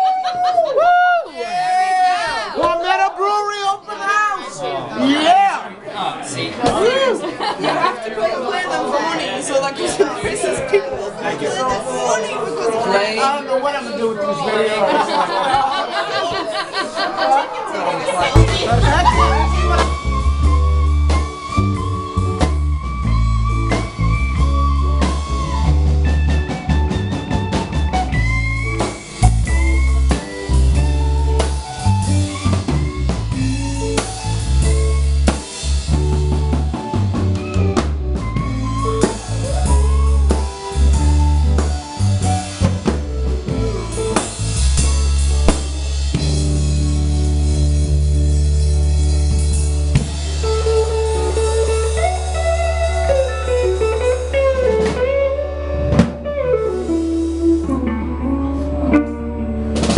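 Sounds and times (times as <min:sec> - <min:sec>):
bass guitar: 0:18.2 - 0:59.9
electric guitars: 0:18.2 - 0:59.9
drum kit: 0:18.3 - 0:59.9.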